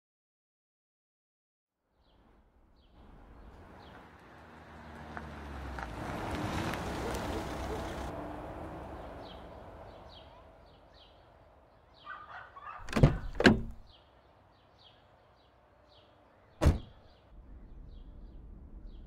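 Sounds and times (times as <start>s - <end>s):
door thuds: 12.8s - 13.8s, 16.6s - 17.0s.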